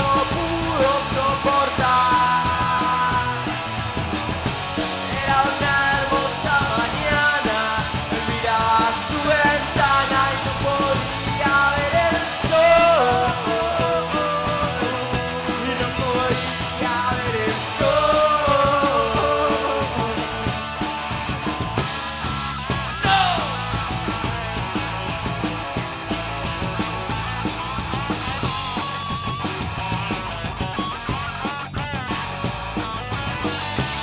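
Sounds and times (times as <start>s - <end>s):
man singing: 0.0s - 3.8s, 4.8s - 20.7s, 23.0s - 23.8s
bass guitar: 0.0s - 34.0s
drum kit with cymbals: 0.0s - 34.0s
electric guitars: 0.0s - 34.0s.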